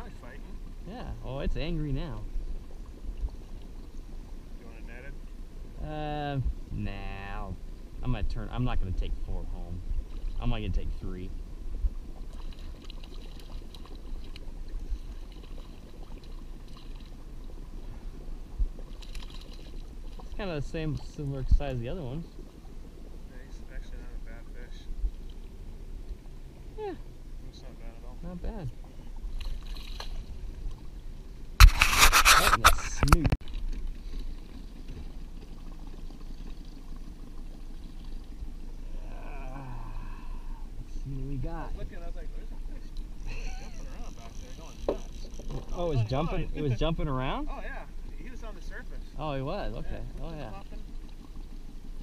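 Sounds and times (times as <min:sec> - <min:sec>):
low steady rumble: 0:00.0 - 0:52.0
steady low hum: 0:00.0 - 0:52.0
water around a boat: 0:00.0 - 0:52.0
fish splashing at water surface: 0:12.1 - 0:24.0.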